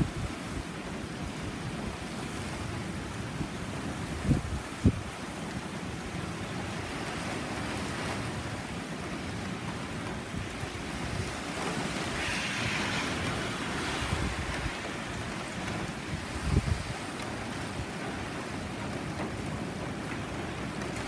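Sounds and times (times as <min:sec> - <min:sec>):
heavy rain: 0:00.0 - 0:21.0
wind buffeting microphone: 0:00.0 - 0:21.0
strong wind rushing: 0:10.0 - 0:18.9.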